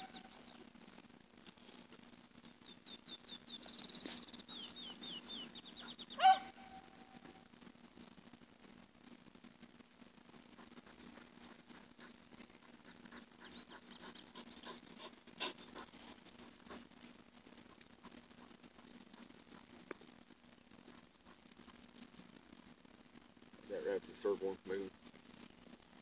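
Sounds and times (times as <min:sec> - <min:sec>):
dogs barking and yipping: 0:00.0 - 0:00.6, 0:03.6 - 0:09.2, 0:10.2 - 0:20.2.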